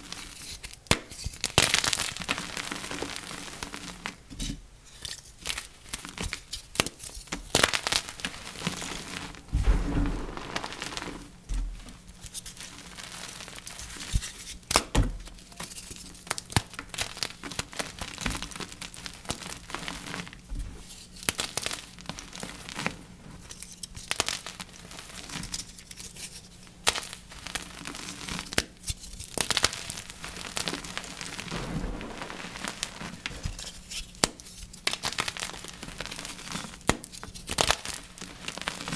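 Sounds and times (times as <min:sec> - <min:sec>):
dull thumps: 0:09.5 - 0:11.9.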